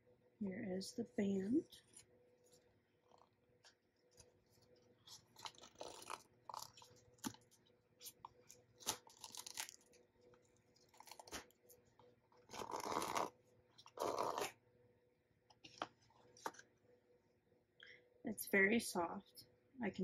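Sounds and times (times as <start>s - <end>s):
packaging rustling and scraping: 1.7s - 14.6s, 15.6s - 16.7s.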